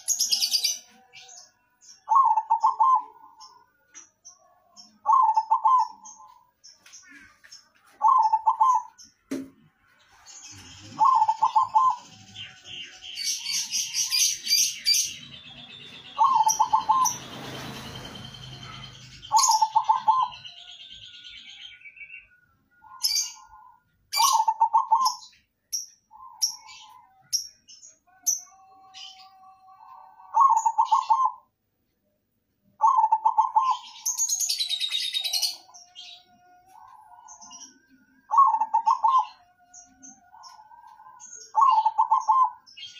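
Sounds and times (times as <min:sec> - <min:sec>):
bird chirping and whistling: 0:02.0 - 0:03.5, 0:05.0 - 0:06.4, 0:08.0 - 0:09.0, 0:10.5 - 0:25.4, 0:30.2 - 0:31.4, 0:32.8 - 0:36.3, 0:38.3 - 0:42.9
dove cooing: 0:02.1 - 0:03.6, 0:05.0 - 0:06.4, 0:08.0 - 0:09.0, 0:10.5 - 0:20.5, 0:22.8 - 0:25.3, 0:28.5 - 0:31.5, 0:32.8 - 0:34.2, 0:38.2 - 0:39.6, 0:40.2 - 0:42.9.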